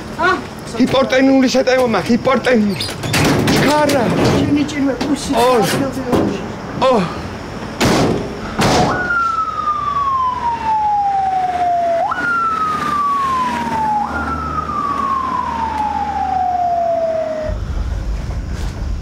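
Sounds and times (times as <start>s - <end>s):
ambulance siren wailing: 8.9s - 17.6s.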